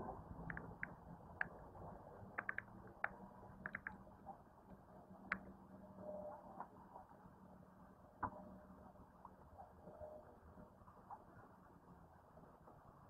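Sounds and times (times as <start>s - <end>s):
low steady hum: 0.0s - 13.0s
light clicks and knocks: 2.4s - 4.0s.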